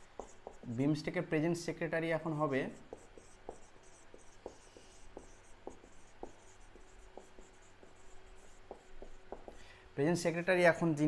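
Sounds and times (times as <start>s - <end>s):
marker writing on whiteboard: 0.0s - 1.1s, 2.2s - 9.6s.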